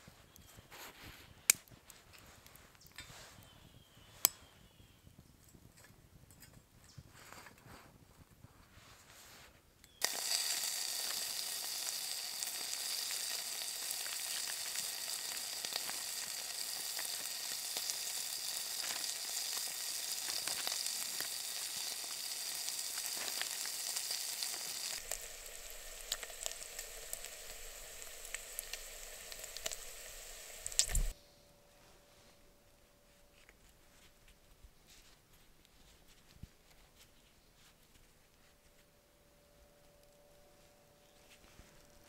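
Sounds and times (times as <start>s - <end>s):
bacon sizzling and crackling: 10.0s - 31.2s.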